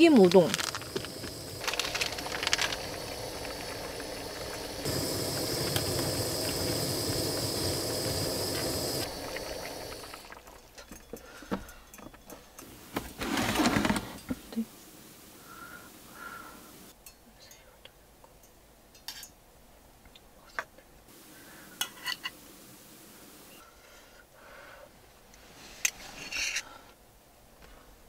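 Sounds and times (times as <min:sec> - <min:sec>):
gas stove hissing: 0:00.0 - 0:10.8, 0:14.8 - 0:16.9, 0:21.1 - 0:23.7.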